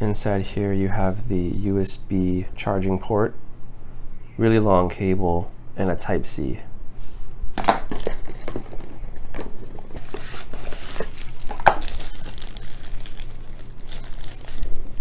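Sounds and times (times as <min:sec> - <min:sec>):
plastic bag crinkling: 0:07.8 - 0:15.0.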